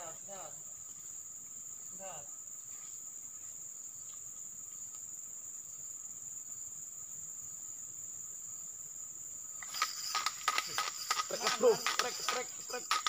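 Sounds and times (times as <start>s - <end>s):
insects lower steady note: 0.0s - 13.0s
insects shrill high note: 9.6s - 13.0s.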